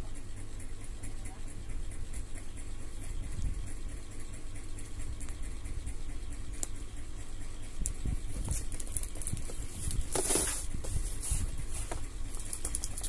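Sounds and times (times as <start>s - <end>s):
cardboard box rustling: 8.9s - 12.0s.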